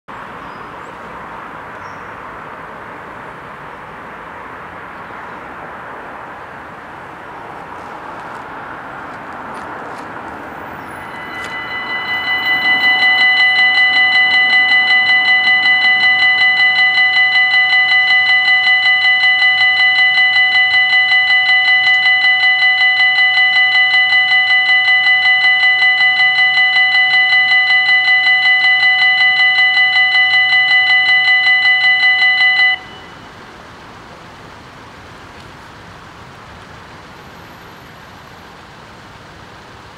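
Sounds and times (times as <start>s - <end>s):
level crossing warning bells: 9.9s - 33.8s.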